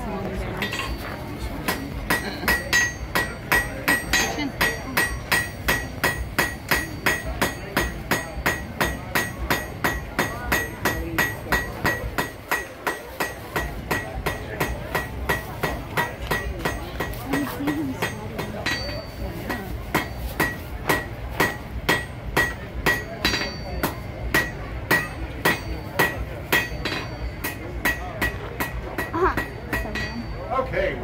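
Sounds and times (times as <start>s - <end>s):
hammer striking iron on anvil: 0.6s - 30.6s.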